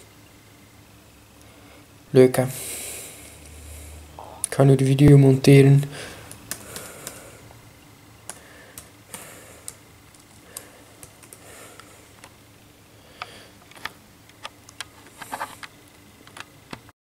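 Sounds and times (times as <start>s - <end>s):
low steady hum: 0.0s - 16.9s.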